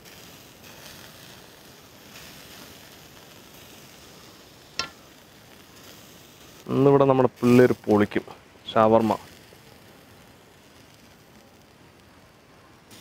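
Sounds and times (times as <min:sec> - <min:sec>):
meat sizzling over charcoal: 0:00.0 - 0:13.0.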